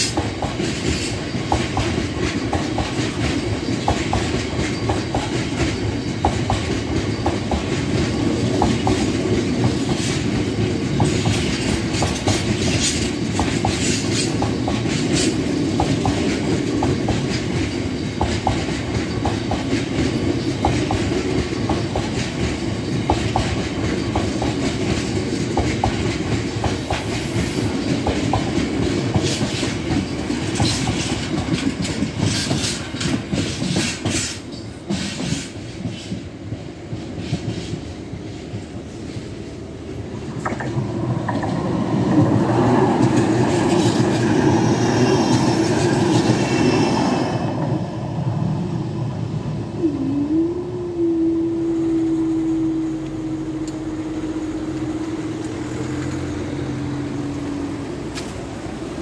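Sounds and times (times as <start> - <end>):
wheels clacking over rail joints: 0.0 - 39.4, 40.2 - 47.8
freight train rumbling past: 0.0 - 59.0.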